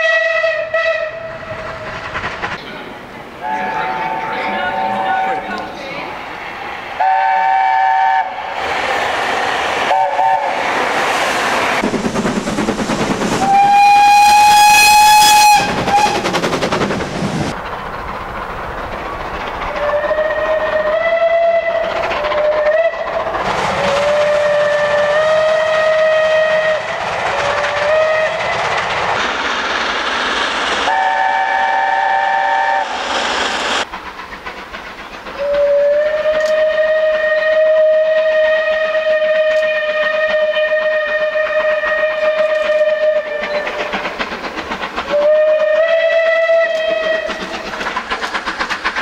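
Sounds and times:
steam locomotive whistle: 0:00.0 - 0:01.8, 0:03.4 - 0:05.6, 0:07.0 - 0:08.6, 0:09.8 - 0:10.8, 0:13.4 - 0:16.3, 0:19.8 - 0:23.2, 0:23.8 - 0:26.9, 0:27.5 - 0:28.6, 0:30.9 - 0:33.0, 0:35.4 - 0:44.0, 0:45.1 - 0:47.5
trains rumbling: 0:00.0 - 0:49.0.

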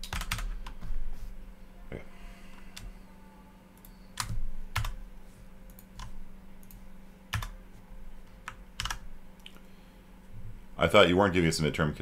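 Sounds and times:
computer keyboard keystrokes: 0:00.0 - 0:00.8, 0:03.8 - 0:05.0, 0:05.7 - 0:07.6, 0:08.4 - 0:09.6.

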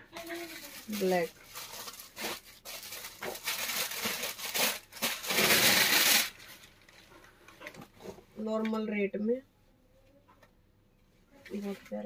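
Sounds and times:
fabric and plastic rustling: 0:00.1 - 0:08.3, 0:11.2 - 0:12.0.

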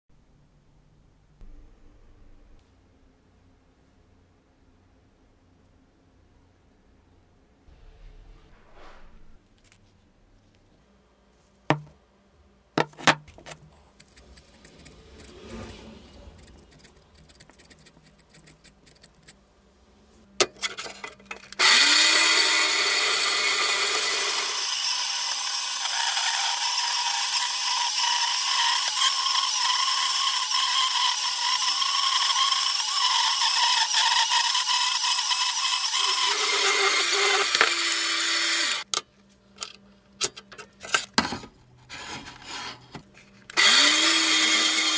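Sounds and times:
bandsaw cutting steel: 0:13.9 - 0:19.3, 0:20.4 - 0:38.9, 0:41.9 - 0:44.9.

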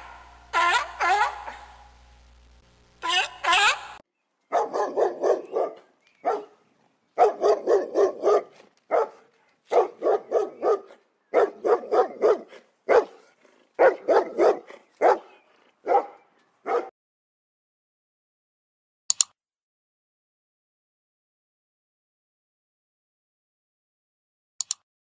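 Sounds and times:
dog barking: 0:00.0 - 0:01.9, 0:04.5 - 0:06.6, 0:07.2 - 0:16.9.

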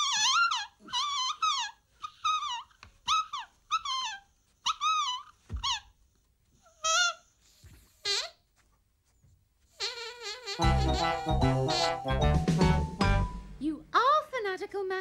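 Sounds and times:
high squeaker squeaks: 0:09.8 - 0:12.0.

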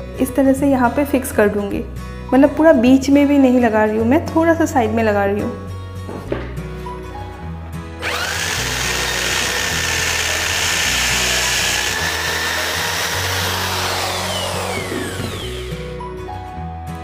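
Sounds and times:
electric drill boring into wood: 0:08.0 - 0:16.0.

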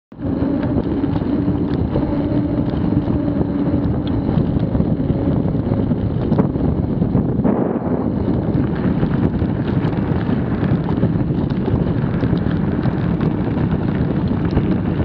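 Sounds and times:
bike tyre humming on tarmac: 0:00.1 - 0:15.0
wind buffeting microphone: 0:00.1 - 0:15.0
faint bike clicks: 0:08.2 - 0:15.0.

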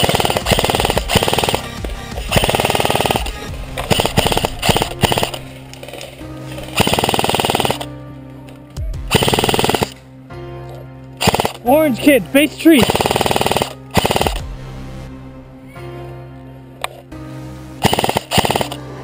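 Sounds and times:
airsoft rifle bursts: 0:00.0 - 0:06.1, 0:06.7 - 0:07.9, 0:09.1 - 0:10.0, 0:11.2 - 0:11.7, 0:12.7 - 0:14.4, 0:17.8 - 0:18.8
background music: 0:00.0 - 0:19.0.

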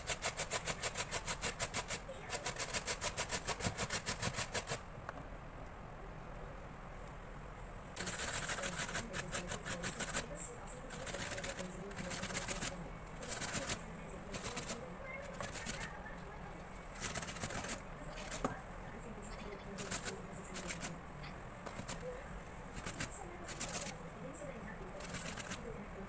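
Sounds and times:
apple grated on metal grater: 0:00.0 - 0:04.8, 0:08.0 - 0:10.3, 0:10.9 - 0:16.0, 0:16.9 - 0:18.6, 0:19.8 - 0:21.0, 0:21.6 - 0:22.1, 0:22.7 - 0:24.0, 0:25.0 - 0:25.7.

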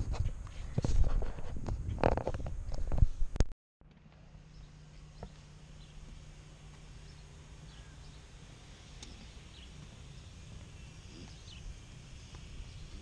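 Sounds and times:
high bird chirps: 0:06.9 - 0:11.8.

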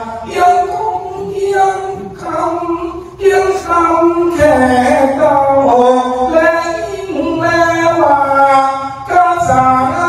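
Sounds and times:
man singing unaccompanied: 0:00.0 - 0:10.0.

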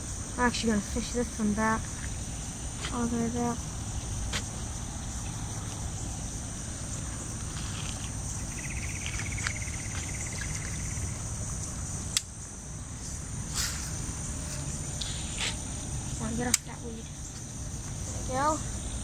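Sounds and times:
insects chirping: 0:00.0 - 0:19.0
low wind rumble: 0:00.0 - 0:19.0
sharp click: 0:12.1 - 0:12.3.

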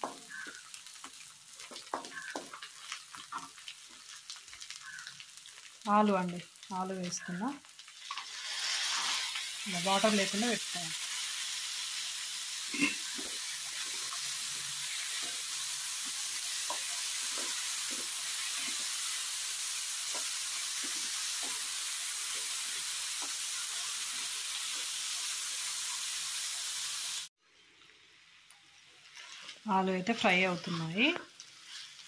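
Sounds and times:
wooden spatula knocking and scraping: 0:00.0 - 0:02.7
potatoes sizzling in hot oil: 0:00.0 - 0:27.3, 0:28.0 - 0:32.0.

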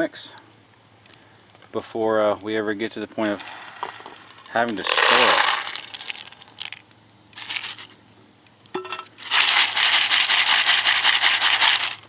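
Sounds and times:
corn kernels pouring into a bowl: 0:03.2 - 0:08.0, 0:09.1 - 0:12.0.

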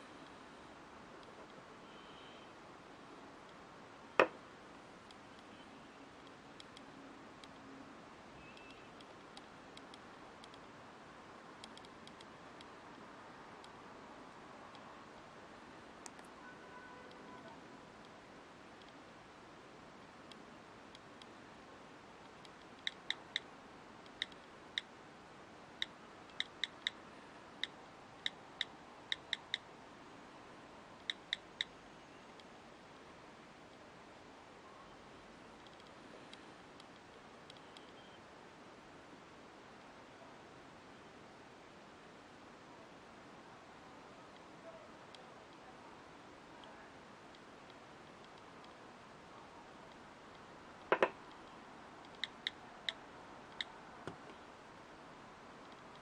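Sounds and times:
faint room hiss: 0:00.0 - 0:56.0
fingertips tapping touchscreen: 0:26.3 - 0:27.0, 0:50.9 - 0:51.2
phone keyboard clicks: 0:50.9 - 0:51.2
sharp knock: 0:50.9 - 0:51.2.

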